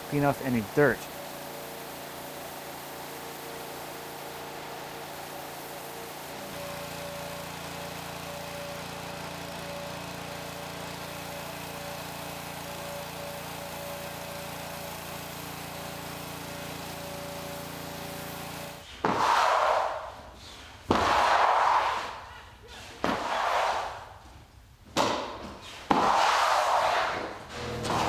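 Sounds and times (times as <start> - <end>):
pressure washer engine running: 0.0 - 18.8, 27.5 - 28.0
water spraying on concrete: 0.1 - 18.8.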